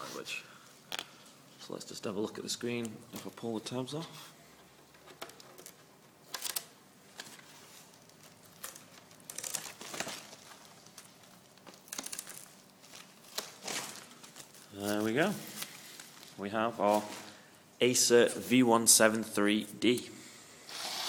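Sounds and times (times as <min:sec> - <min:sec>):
plastic film peeling and crinkling: 0:04.8 - 0:17.4.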